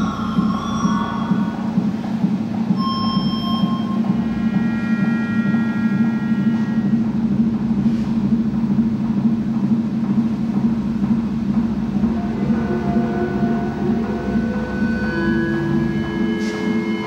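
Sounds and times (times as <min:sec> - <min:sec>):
high sustained tones: 0:00.0 - 0:07.8, 0:11.7 - 0:17.0
dense low drone: 0:00.0 - 0:17.0.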